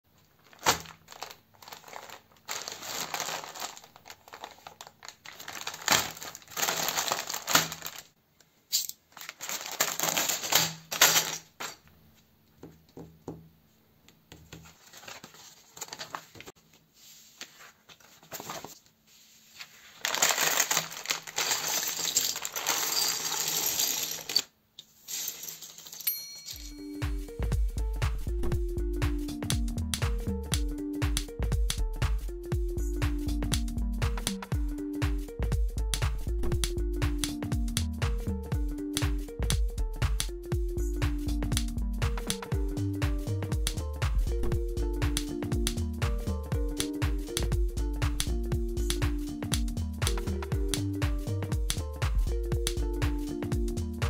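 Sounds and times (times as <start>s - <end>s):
plastic bricks clattering: 0.4s - 8.1s, 20.1s - 24.5s
plastic bag crinkling: 0.4s - 8.2s, 9.1s - 11.8s, 19.8s - 24.4s.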